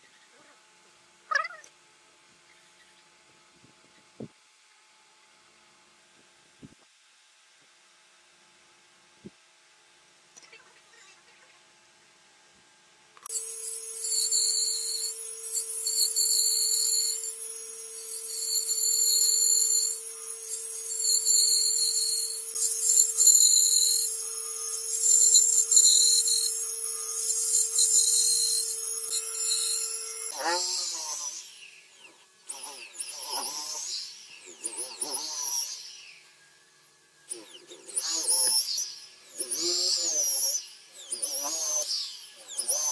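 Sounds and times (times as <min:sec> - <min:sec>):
bandsaw cutting wood: 0:13.2 - 0:42.9
electric drill boring wood: 0:13.2 - 0:42.9.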